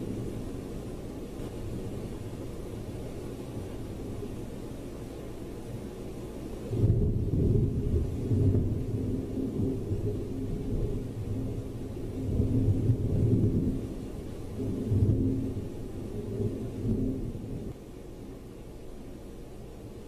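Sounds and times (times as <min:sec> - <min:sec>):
rolling thunder: 0:06.7 - 0:17.8.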